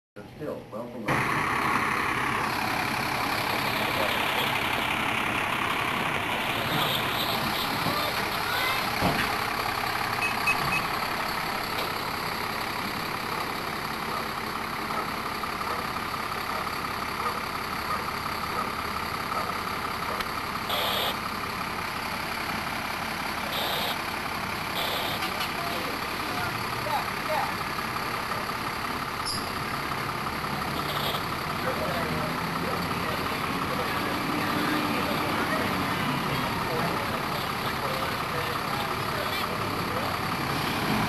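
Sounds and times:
diesel engine running: 0.2 - 41.0
people's voices: 2.4 - 9.6, 24.8 - 41.0.

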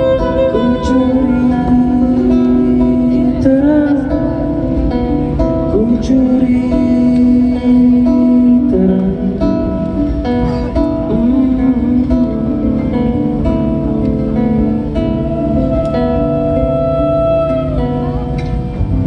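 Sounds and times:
acoustic guitar strumming: 0.0 - 19.0
violin long sliding notes: 15.0 - 18.4.

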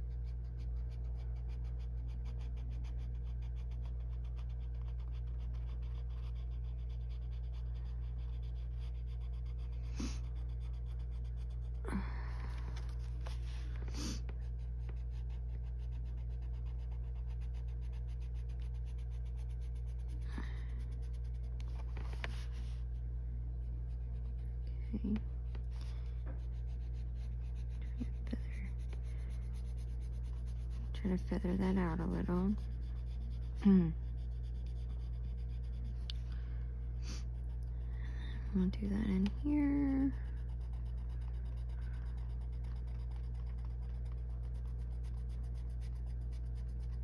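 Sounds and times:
colored pencil scratching on paper: 0.0 - 11.9, 12.5 - 23.0, 23.6 - 36.2, 37.0 - 47.0
steady low hum: 0.0 - 47.0
paper rustle: 21.7 - 22.8.

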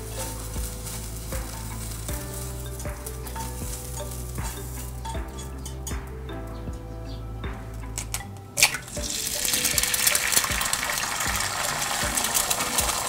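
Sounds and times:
egg sizzling in oil: 0.0 - 6.0, 8.6 - 13.0.

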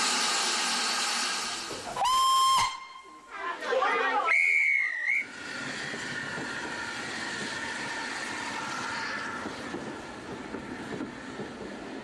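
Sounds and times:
steam locomotive running: 0.0 - 2.8, 4.6 - 12.0
train whistle blast: 2.0 - 3.1, 4.3 - 5.3.

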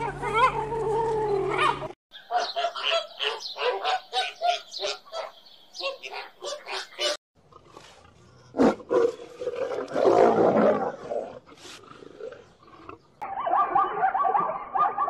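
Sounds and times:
zebra barking calls: 0.0 - 7.2
lion roaring: 7.5 - 13.0.

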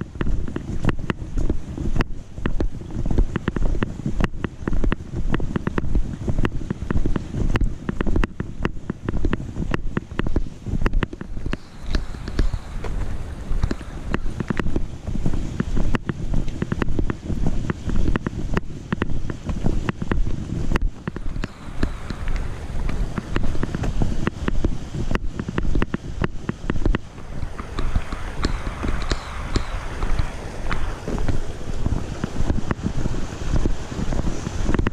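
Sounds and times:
creek rushing: 0.0 - 34.9
footsteps on trail: 0.0 - 34.9
low rubbing rumble on microphone: 0.0 - 34.9.

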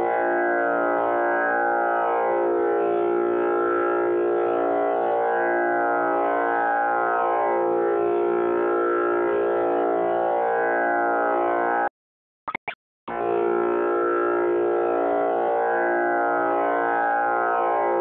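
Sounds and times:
tanpura drone: 0.0 - 11.9, 13.1 - 18.0
brief blips: 12.5 - 12.8.

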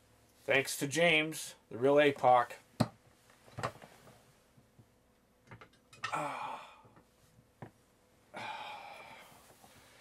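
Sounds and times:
breathy sigh: 6.0 - 7.0, 8.3 - 9.6.

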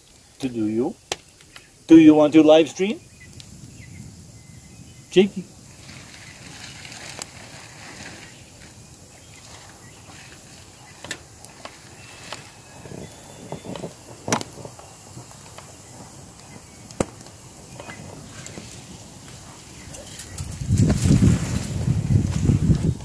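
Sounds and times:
soft rustles: 5.7 - 16.3.

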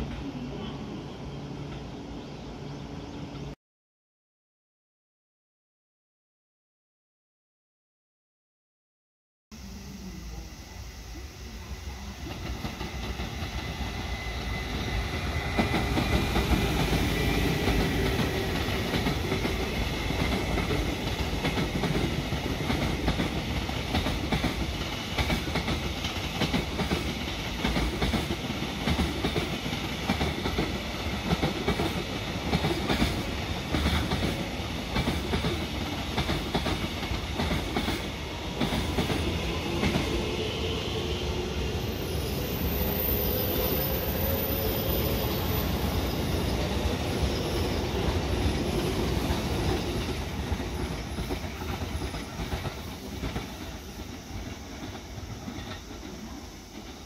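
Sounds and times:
train wheels clattering: 12.4 - 40.2.

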